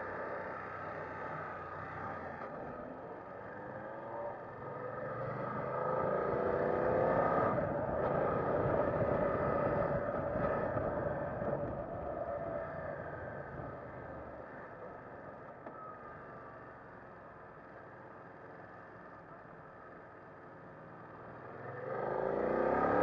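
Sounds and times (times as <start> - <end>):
motorcycle engine accelerating: 21.5 - 23.0.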